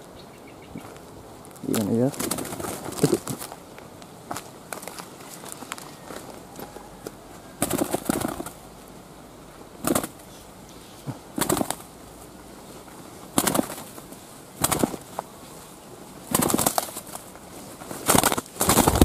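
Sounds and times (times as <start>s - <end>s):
dove flapping wings: 1.6s - 3.7s, 7.5s - 8.7s, 9.8s - 10.3s, 11.1s - 19.0s.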